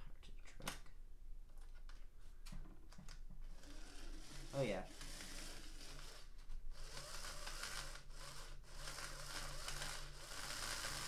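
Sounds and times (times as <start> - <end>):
small electric motor whirring: 3.5 - 11.0.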